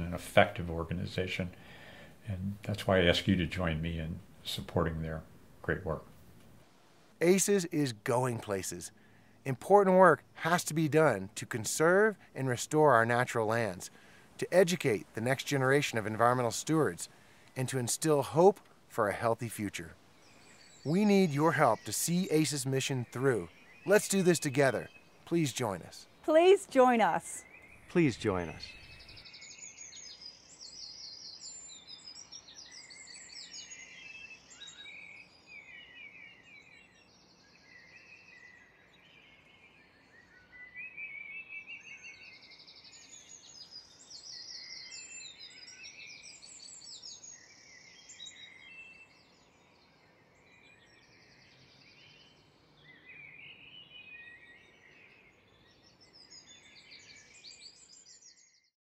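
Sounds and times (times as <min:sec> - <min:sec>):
songbirds singing: 0:00.0 - 0:06.1, 0:07.1 - 0:58.7
faint steady hiss: 0:00.0 - 0:35.5.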